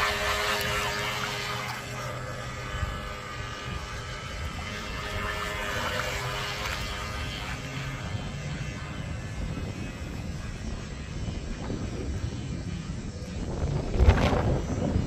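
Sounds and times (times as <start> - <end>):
electric motor whine: 0.0 - 15.0
wind buffeting microphone: 0.0 - 15.0.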